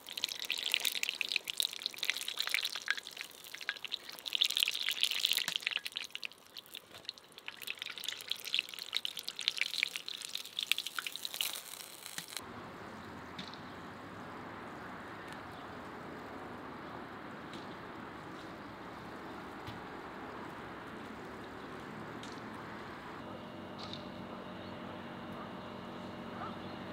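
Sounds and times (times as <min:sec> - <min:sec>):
hot oil crackling: 0:00.0 - 0:12.4
steady hiss: 0:10.1 - 0:12.4.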